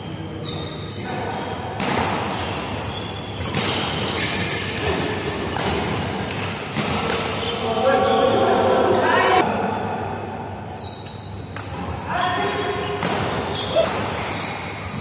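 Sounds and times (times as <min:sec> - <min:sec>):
racket hitting shuttlecock: 0:01.8 - 0:07.5, 0:12.9 - 0:15.0.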